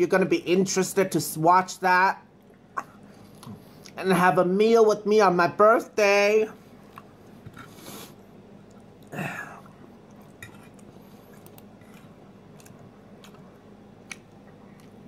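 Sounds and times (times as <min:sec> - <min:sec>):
chewing: 0:08.6 - 0:15.0.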